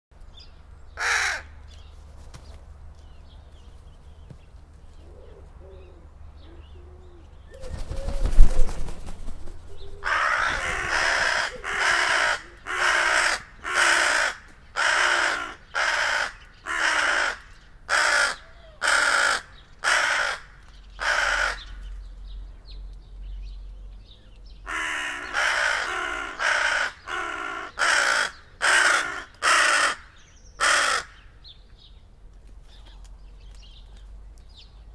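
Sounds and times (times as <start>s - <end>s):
crow cawing: 1.0s - 1.6s, 10.0s - 21.8s, 24.7s - 31.3s.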